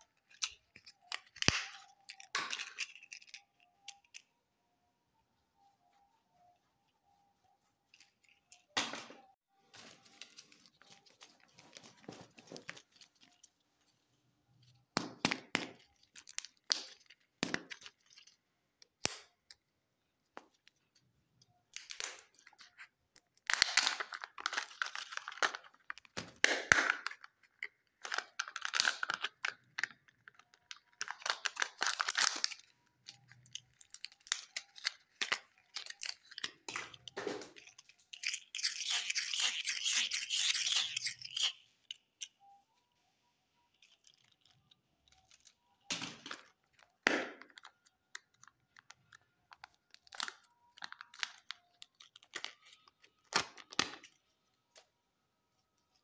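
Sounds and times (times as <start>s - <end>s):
foil wrappers crinkling: 23.5s - 26.2s, 26.9s - 39.8s, 49.5s - 54.2s.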